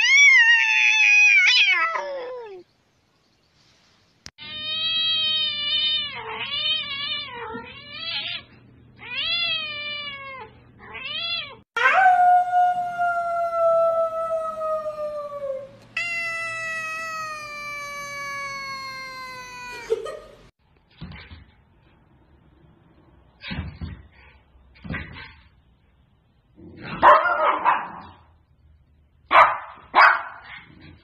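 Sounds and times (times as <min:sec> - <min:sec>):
cats meowing: 0:04.4 - 0:11.6, 0:16.0 - 0:20.0.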